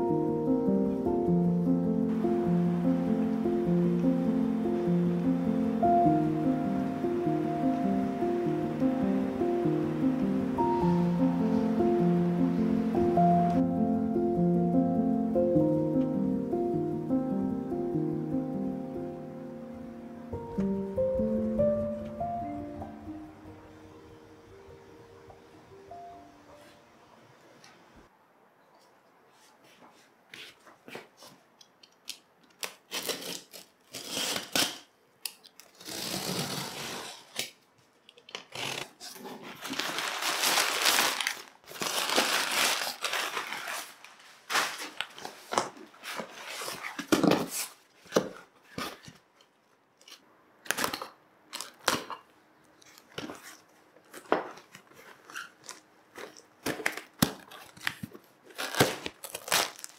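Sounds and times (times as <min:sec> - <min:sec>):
rustling and scraping: 0:35.7 - 0:49.6, 0:52.8 - 0:56.8.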